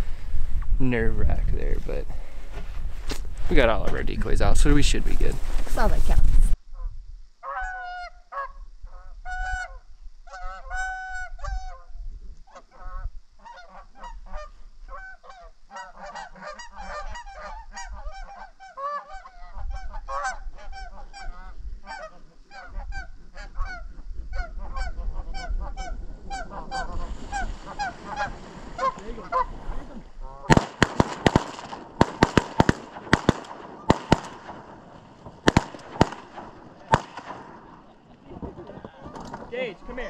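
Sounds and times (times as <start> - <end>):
geese honking: 7.4 - 11.8, 12.5 - 39.4.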